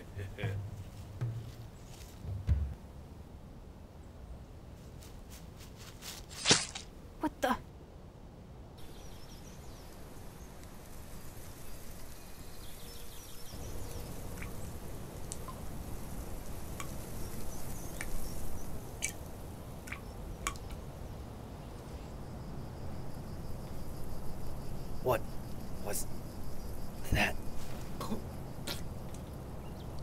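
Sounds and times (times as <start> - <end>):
small birds chirping: 8.8 - 30.0.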